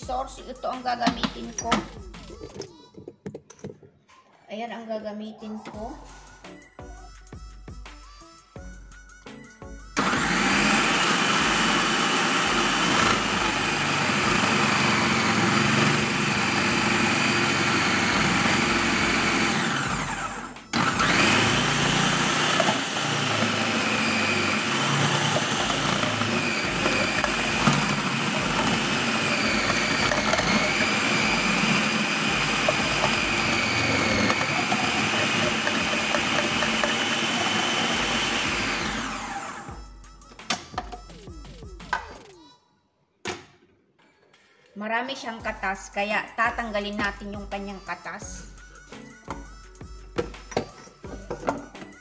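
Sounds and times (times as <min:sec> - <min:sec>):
food processor motor running: 0:10.0 - 0:39.8.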